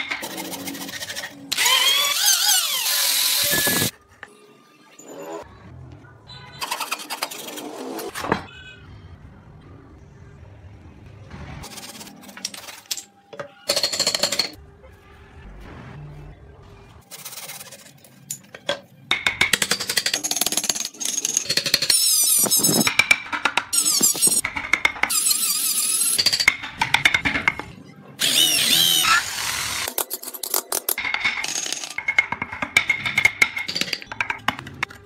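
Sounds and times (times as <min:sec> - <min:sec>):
wooden blocks knocking and scraping: 0:18.3 - 0:25.3, 0:26.2 - 0:27.8, 0:29.8 - 0:35.0.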